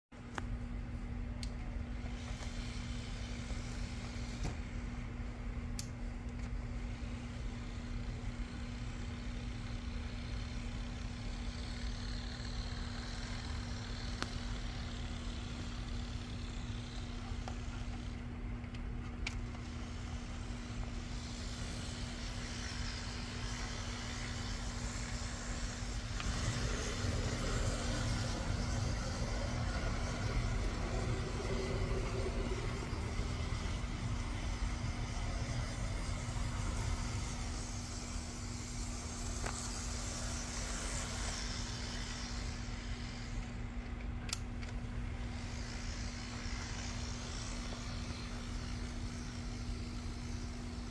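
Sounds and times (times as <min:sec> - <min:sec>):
model locomotive motor whirring: 0:01.3 - 0:50.9.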